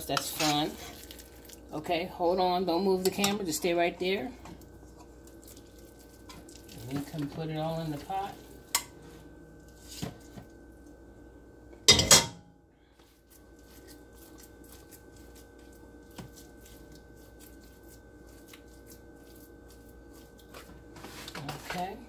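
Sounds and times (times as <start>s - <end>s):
faint steady hum: 0.0s - 22.0s
metal pot clunking on grate: 11.9s - 12.5s.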